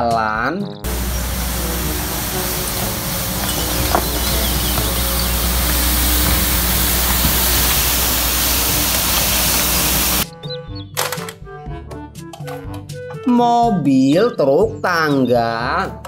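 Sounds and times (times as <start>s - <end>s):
background music: 0.0s - 16.0s
street sweeper running: 0.9s - 10.2s.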